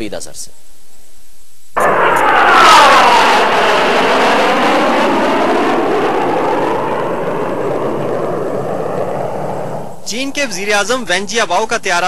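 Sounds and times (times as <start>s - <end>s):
jet aircraft flying past: 1.8s - 10.6s.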